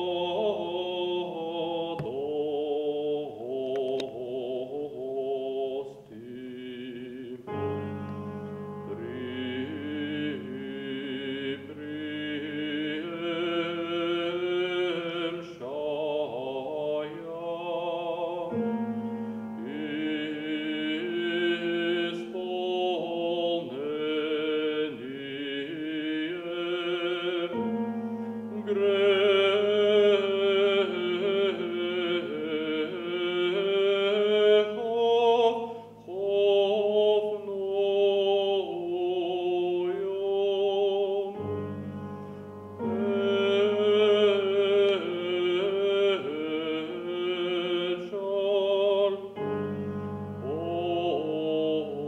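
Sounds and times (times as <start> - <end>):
baritone singing with vibrato: 0.0 - 42.1, 42.7 - 52.0
piano chords: 6.6 - 52.0.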